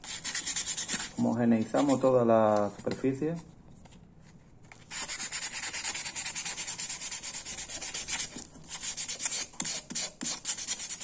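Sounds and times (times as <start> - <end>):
sandpaper scratching plastic: 4.9 - 11.0.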